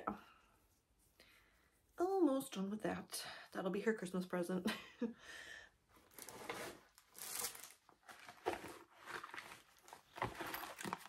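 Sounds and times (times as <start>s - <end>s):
fabric rustling and crinkling: 6.0s - 11.0s.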